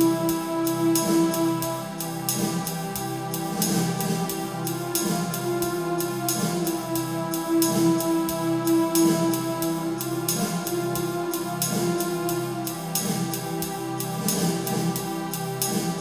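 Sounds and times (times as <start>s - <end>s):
steady drum beat: 0.0s - 16.0s.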